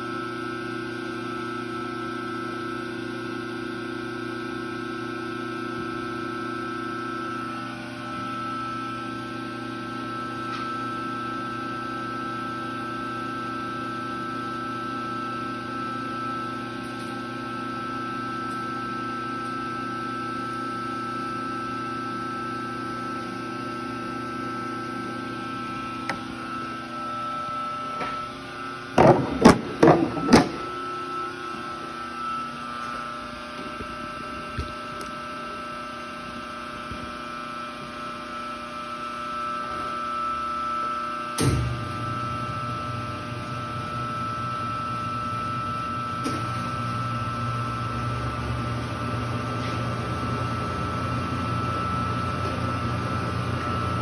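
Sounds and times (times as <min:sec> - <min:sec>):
machine humming and whining: 0:00.0 - 0:54.0
loud knocks clattering: 0:29.0 - 0:30.6.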